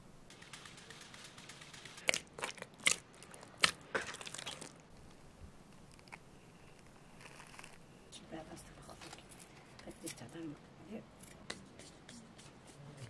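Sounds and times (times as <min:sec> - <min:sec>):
dough mixed by hand crackling: 0:02.0 - 0:08.0.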